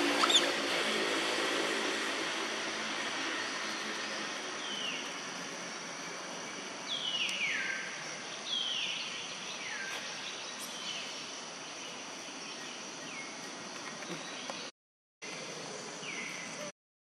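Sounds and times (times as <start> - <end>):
high calls sliding downward: 0.0 - 0.8
insect hiss: 0.1 - 14.4.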